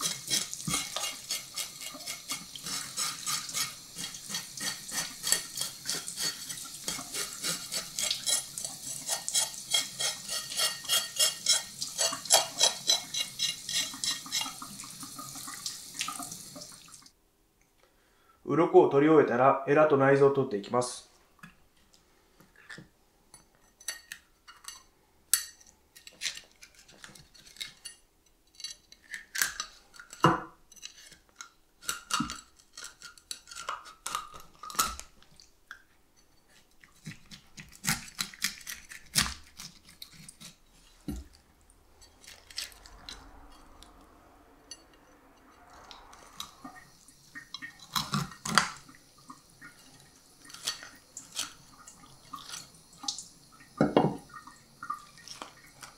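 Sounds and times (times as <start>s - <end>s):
faint steady hiss: 0.0s - 55.9s
knife crunching through fish: 36.9s - 40.6s, 42.2s - 42.9s, 47.8s - 48.8s.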